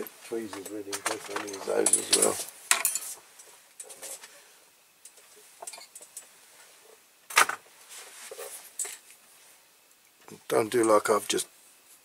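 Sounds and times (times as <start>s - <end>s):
small hand tools clinking: 0.5s - 4.2s.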